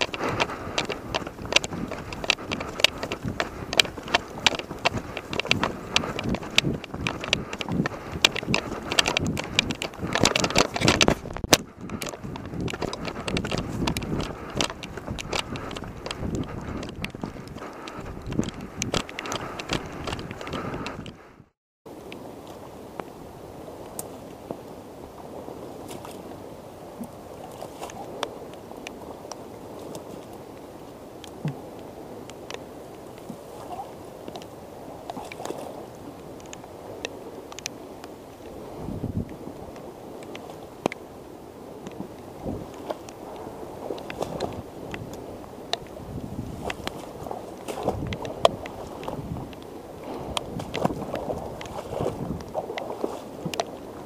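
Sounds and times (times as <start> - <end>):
footsteps through wet grass: 0.0 - 20.8, 38.8 - 54.0
sharp ticks: 0.0 - 21.2
wind noise on microphone: 0.0 - 54.0.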